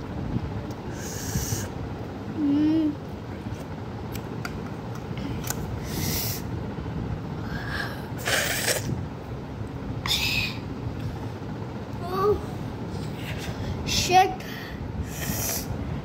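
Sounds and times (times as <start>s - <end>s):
low background noise: 0.0s - 16.0s
boy taking hissing breaths: 0.9s - 1.8s, 5.8s - 6.5s, 14.4s - 15.8s.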